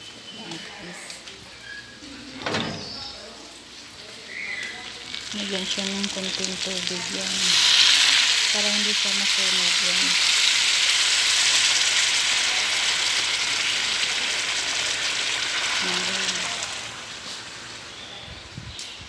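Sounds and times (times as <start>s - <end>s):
water sizzling in hot pot: 3.9s - 18.2s.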